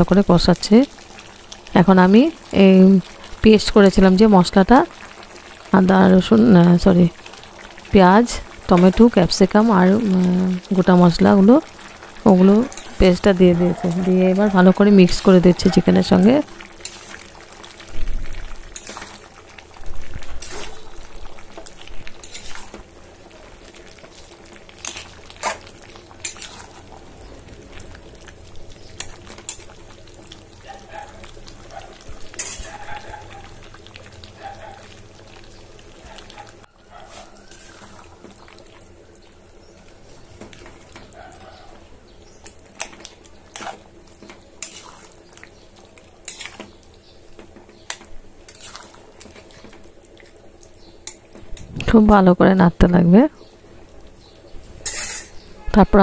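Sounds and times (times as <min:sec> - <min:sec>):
curry simmering sizzle: 0:00.0 - 0:56.0
metal spatula scraping pan: 0:22.2 - 0:22.8, 0:24.8 - 0:26.8, 0:32.4 - 0:32.9, 0:44.6 - 0:45.1, 0:54.8 - 0:55.5.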